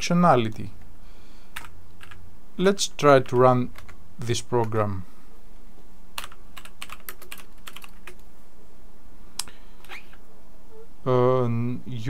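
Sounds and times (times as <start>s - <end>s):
steady low hum: 0.0s - 12.0s
keyboard typing: 1.6s - 2.2s, 3.2s - 4.0s, 6.2s - 8.2s.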